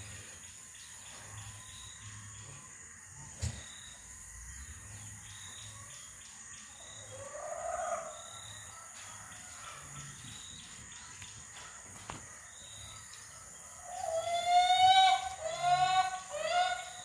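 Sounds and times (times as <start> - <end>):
rising and falling bird call: 13.9 - 17.0.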